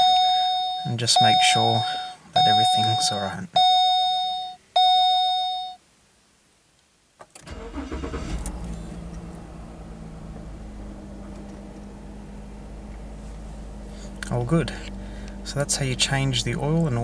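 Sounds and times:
car engine starting and idling: 0:07.2 - 0:17.0.

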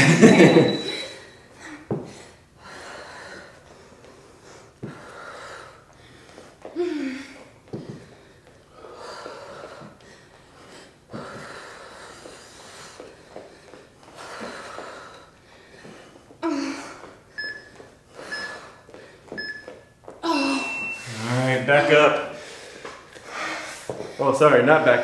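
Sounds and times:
short high timer beeps: 0:00.3 - 0:01.2, 0:18.3 - 0:18.6, 0:20.6 - 0:21.2
people breathing hard: 0:01.5 - 0:24.4.

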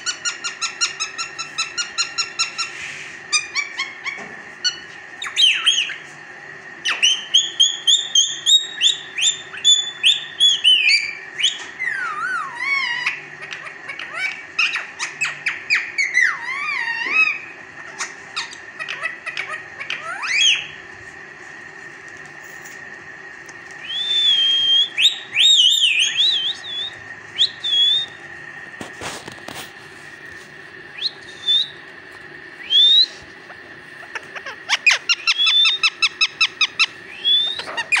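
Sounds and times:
parakeet whistling: 0:00.0 - 0:06.0, 0:06.8 - 0:20.8, 0:23.8 - 0:28.3, 0:30.9 - 0:38.0.

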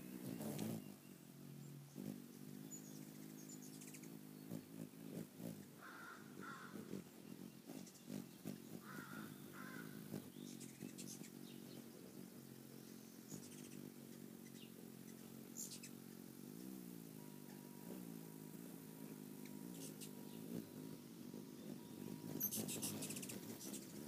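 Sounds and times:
hummingbird wings humming: 0:00.0 - 0:24.0
crow cawing: 0:05.8 - 0:06.8, 0:08.8 - 0:10.0.

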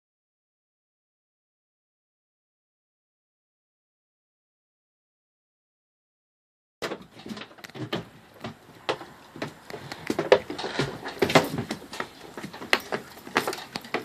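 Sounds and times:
dog paws scrambling on boat deck: 0:06.8 - 0:14.0.

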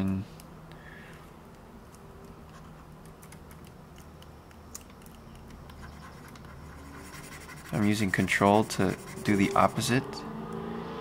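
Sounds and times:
low steady hum: 0:00.0 - 0:11.0
computer keyboard clicks: 0:03.0 - 0:06.5.

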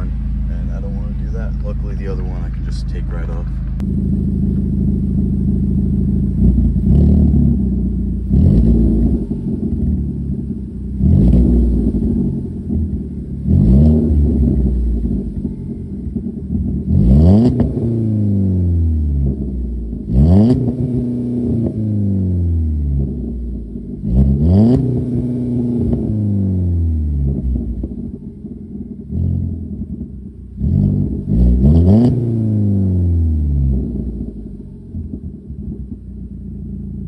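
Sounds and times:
car engine revving: 0:00.0 - 0:37.0.

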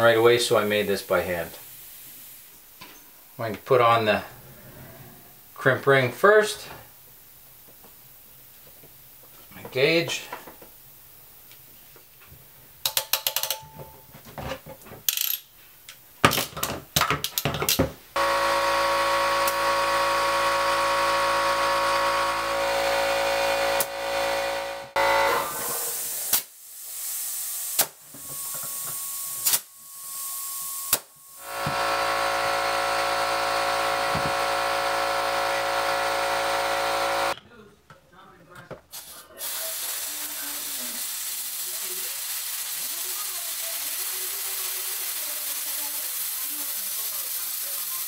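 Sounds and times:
air hissing bursts: 0:00.5 - 0:02.7, 0:18.2 - 0:37.4, 0:38.9 - 0:48.0
air compressor running: 0:18.2 - 0:37.4, 0:38.9 - 0:48.0.

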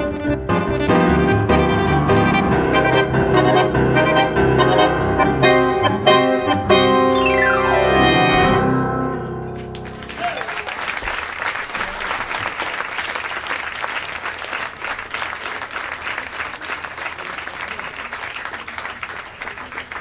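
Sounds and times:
audience applauding: 0:09.6 - 0:20.0.

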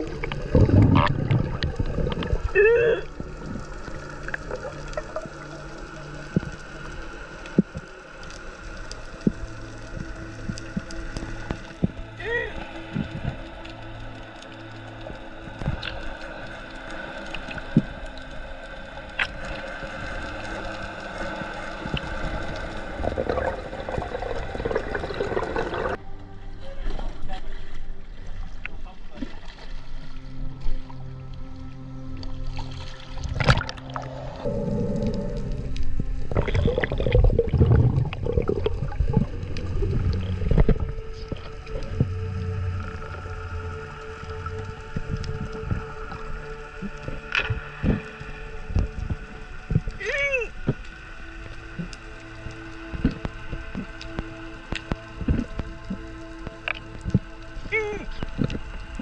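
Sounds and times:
muffled underwater hiss: 0:00.0 - 0:59.0
sharp underwater clicks: 0:50.6 - 0:59.0.

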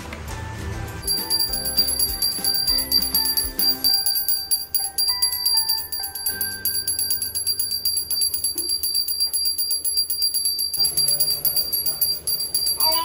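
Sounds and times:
hand bell ringing rapidly: 0:01.0 - 0:13.0.

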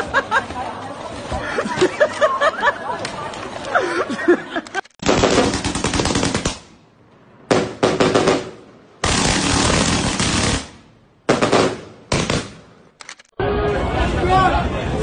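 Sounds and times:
firework crackling pops: 0:05.0 - 0:06.8, 0:07.5 - 0:12.6.

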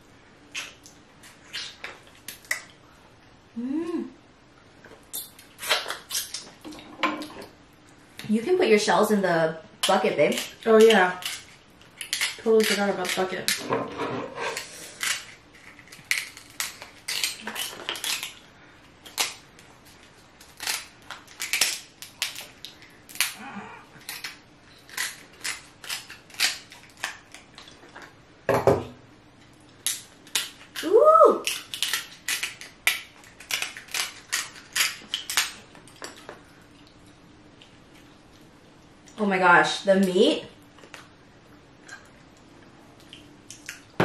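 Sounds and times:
crab shell cracking: 0:09.8 - 0:13.6, 0:15.0 - 0:23.4, 0:24.0 - 0:27.6, 0:29.7 - 0:36.3.

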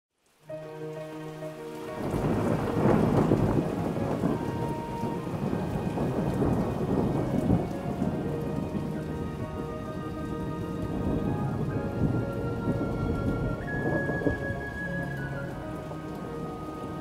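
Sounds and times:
rain falling: 0:00.1 - 0:17.0
soft sustained music tones: 0:00.2 - 0:17.0
thunder rolling: 0:01.8 - 0:17.0.

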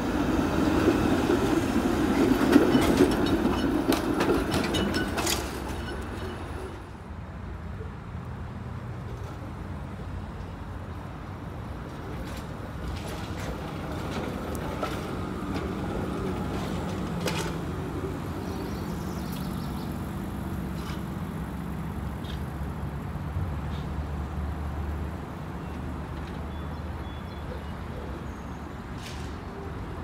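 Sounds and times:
wheels clicking on rails: 0:00.0 - 0:07.0, 0:11.5 - 0:24.0
streetcar rumbling past: 0:00.0 - 0:30.0.

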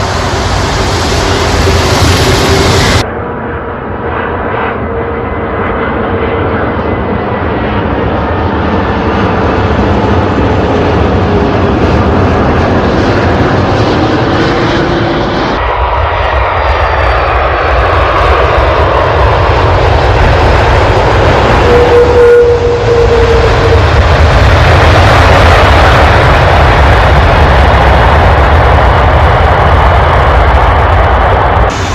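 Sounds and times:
low rumble: 0:00.0 - 0:05.2, 0:06.7 - 0:31.9
jet engines roaring and whining: 0:00.0 - 0:31.9.

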